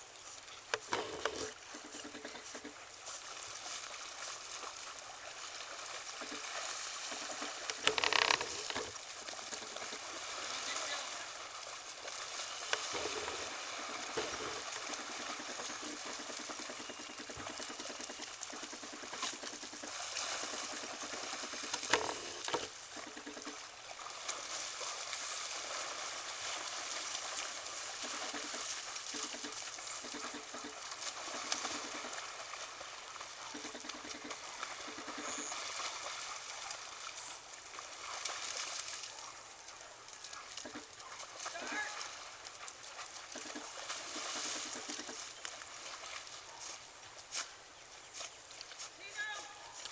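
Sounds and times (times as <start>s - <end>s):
steady outdoor hiss: 0.0s - 49.9s
dogs splashing in water: 1.0s - 47.0s.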